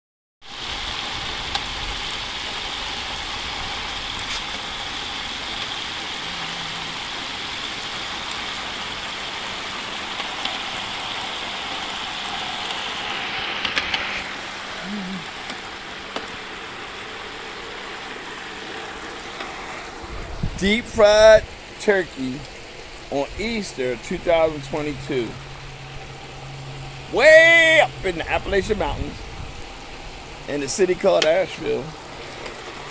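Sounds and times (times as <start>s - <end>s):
oil sizzling and bubbling: 0.4s - 32.9s.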